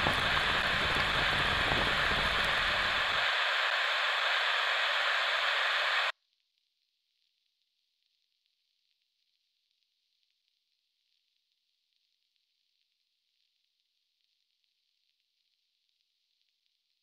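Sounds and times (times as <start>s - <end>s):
low rumble: 0.0s - 3.2s
loud static hiss: 0.0s - 6.1s
faint crackle: 0.0s - 17.0s.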